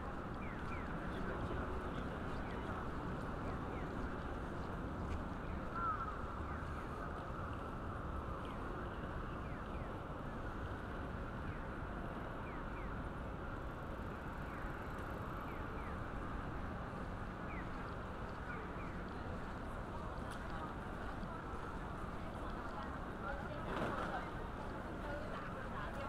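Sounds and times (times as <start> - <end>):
traffic: 0.0 - 26.0
passing people: 13.1 - 26.0.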